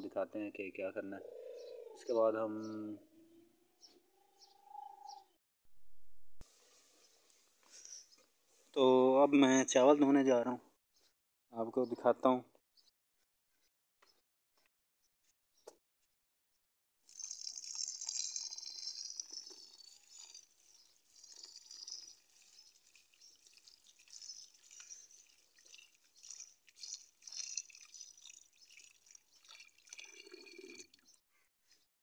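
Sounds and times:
hand swirling rice in water: 0:20.2 - 0:29.9.

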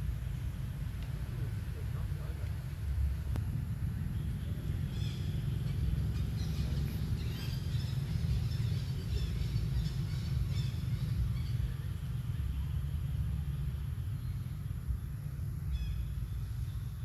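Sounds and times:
steady low rumble: 0:00.0 - 0:17.0
faint bird chirps: 0:15.7 - 0:17.0.

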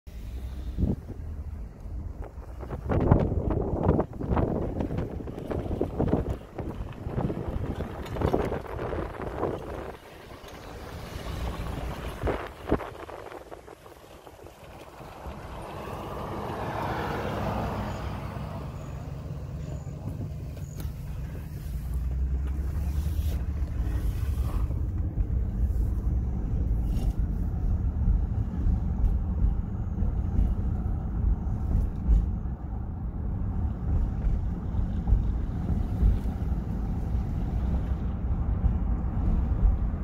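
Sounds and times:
truck engine and road rumble: 0:00.0 - 0:40.0
wind on microphone: 0:00.7 - 0:16.4.

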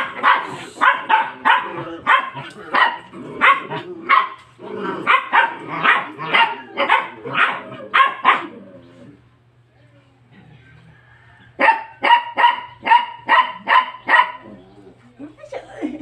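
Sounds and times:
dog barking: 0:00.0 - 0:04.4, 0:05.0 - 0:08.6, 0:11.6 - 0:14.5.

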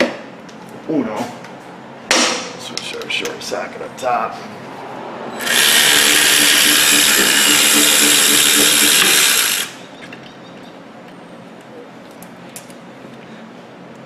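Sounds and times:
power ratchet spinning bolt: 0:05.4 - 0:09.8.

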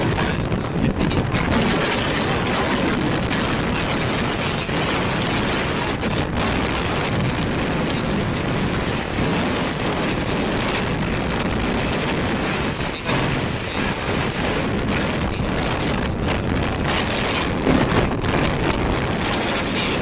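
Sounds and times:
wind rushing over microphone: 0:00.0 - 0:20.0
motorcycle engine running: 0:14.0 - 0:20.0.

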